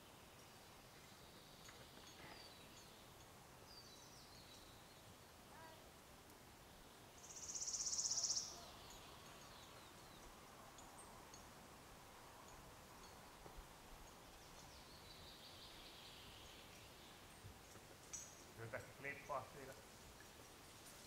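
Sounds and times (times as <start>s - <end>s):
faint bird chirps: 7.2s - 11.2s.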